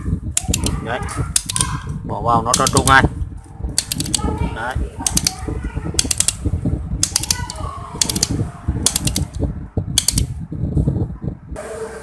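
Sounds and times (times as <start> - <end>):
rumbling handling noise: 0.0 - 11.6
fan switch clicking: 0.4 - 1.8, 2.5 - 3.0, 3.8 - 4.3, 5.0 - 10.4.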